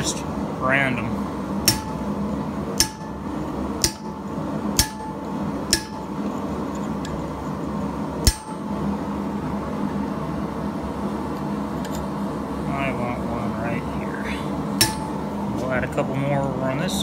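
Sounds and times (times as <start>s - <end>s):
steady hum: 0.0s - 17.0s
hammer striking metal punch: 1.6s - 2.1s, 2.8s - 3.2s, 3.8s - 6.2s, 8.2s - 8.7s, 14.8s - 15.2s.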